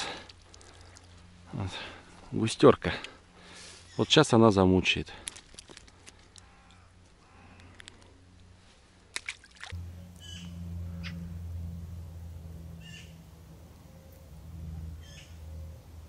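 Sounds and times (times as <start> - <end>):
steady low rumble: 9.7 - 16.0
bird giving short high calls: 10.1 - 11.4, 12.8 - 13.2, 15.0 - 15.8.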